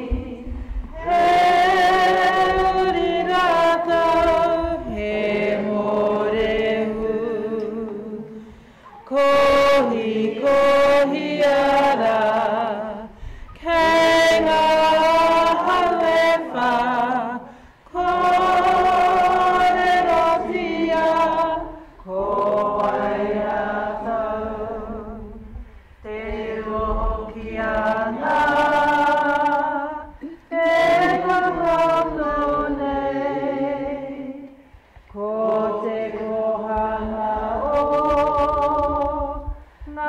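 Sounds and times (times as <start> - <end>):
woman singing unaccompanied: 0.0 - 8.4, 9.0 - 40.0
singer breathing: 8.3 - 9.0, 13.1 - 13.6, 17.5 - 17.9.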